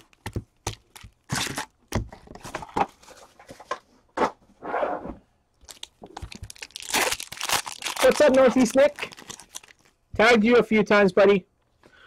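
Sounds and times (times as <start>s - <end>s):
foil wrappers crinkling: 0.0s - 1.7s, 5.6s - 10.0s.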